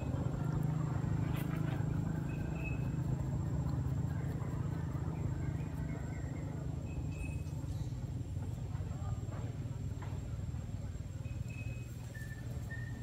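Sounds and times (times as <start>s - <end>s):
faint high chirps: 2.0s - 8.0s, 11.2s - 13.0s.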